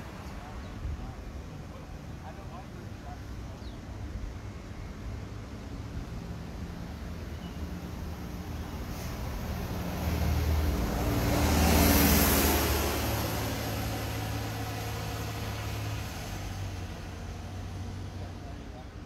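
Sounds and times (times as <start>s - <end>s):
low traffic hum: 0.0s - 19.0s
vehicle driving past: 8.8s - 18.3s.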